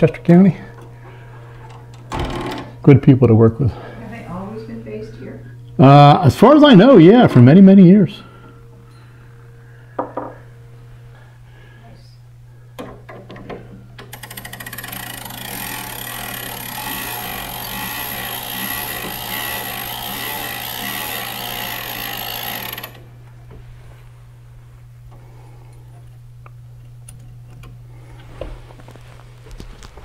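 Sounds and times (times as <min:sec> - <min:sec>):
clock mechanism clicks: 0:14.0 - 0:23.0
mechanical clicking whir: 0:14.0 - 0:23.1.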